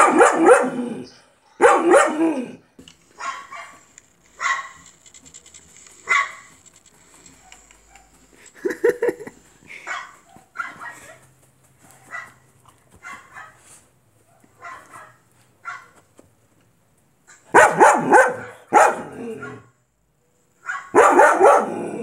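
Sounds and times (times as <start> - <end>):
dogs barking: 0.0 - 4.9, 6.0 - 6.6, 9.7 - 11.3, 11.9 - 16.0, 17.3 - 19.8, 20.6 - 22.0.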